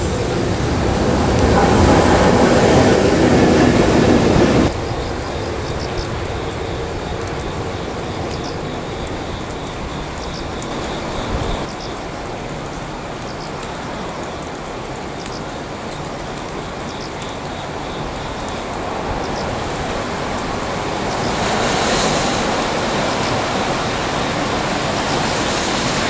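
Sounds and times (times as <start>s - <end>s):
locomotive wheels rumbling on rail: 0.0s - 26.0s.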